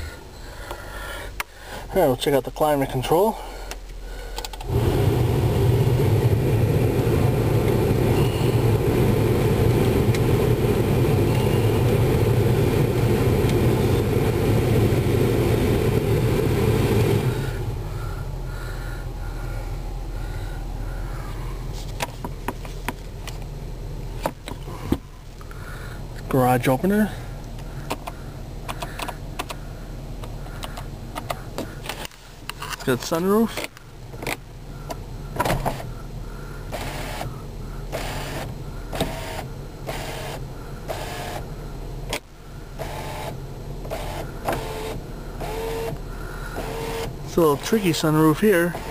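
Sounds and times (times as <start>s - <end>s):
car engine idling: 0.0s - 36.8s
sunroof motor whirring: 4.5s - 18.5s, 37.9s - 41.5s, 42.7s - 48.9s
sun visor plastic clicks: 27.5s - 29.6s, 33.5s - 35.9s.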